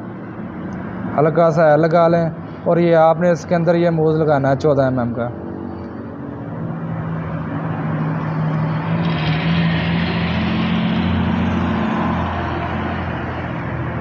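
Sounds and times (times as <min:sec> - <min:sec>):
road noise: 0:00.0 - 0:14.0
vehicle engine running: 0:06.0 - 0:14.0.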